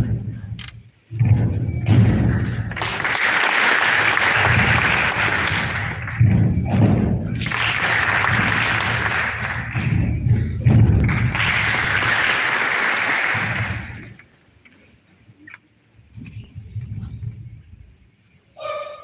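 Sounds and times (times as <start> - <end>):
heavy low thuds: 0.0 - 3.0, 4.3 - 12.1
audience applauding and cheering: 2.3 - 6.3, 7.3 - 10.2, 10.9 - 14.2.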